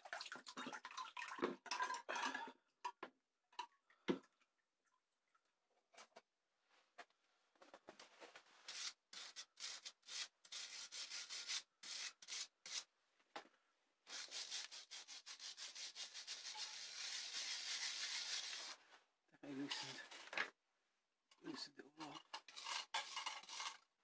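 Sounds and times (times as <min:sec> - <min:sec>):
hand tool scrubbing rust off iron: 0:14.2 - 0:18.7, 0:22.3 - 0:23.8.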